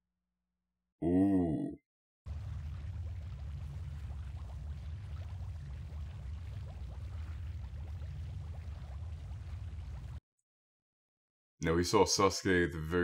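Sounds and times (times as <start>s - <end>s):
deep rumble with bubbling pops: 2.3s - 10.2s.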